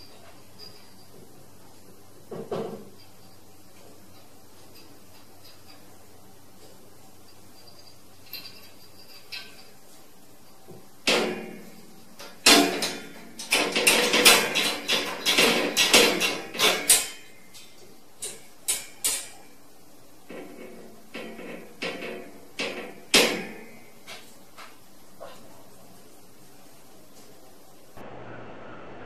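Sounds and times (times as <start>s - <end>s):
cage door rattling: 11.1s - 17.3s.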